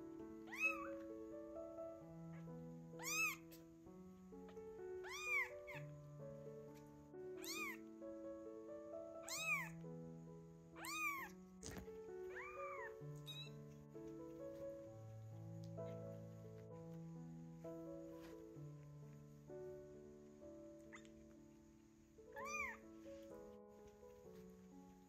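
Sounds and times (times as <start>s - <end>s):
background music with held notes: 0.0s - 25.0s
kittens meowing: 0.5s - 1.0s, 3.0s - 3.6s, 5.0s - 5.9s, 7.4s - 7.8s, 9.2s - 9.8s, 10.8s - 13.6s, 20.9s - 21.1s, 22.3s - 22.8s.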